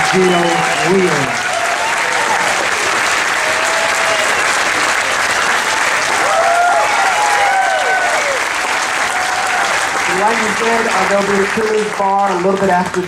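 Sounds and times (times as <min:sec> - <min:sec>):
whoops and cheering: 0:00.0 - 0:04.5, 0:06.1 - 0:09.9
audience applauding: 0:00.0 - 0:13.0.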